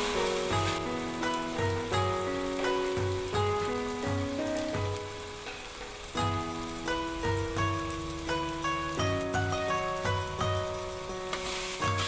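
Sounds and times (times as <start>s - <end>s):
background music with steady beat: 0.0s - 12.0s
chilli and garlic sizzling in oil: 0.0s - 12.0s
spatula stirring in a wok: 11.3s - 12.0s.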